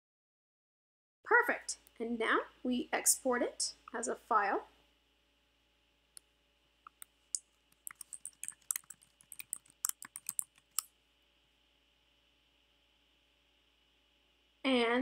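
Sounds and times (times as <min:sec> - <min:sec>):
computer keyboard typing: 0:07.8 - 0:10.8.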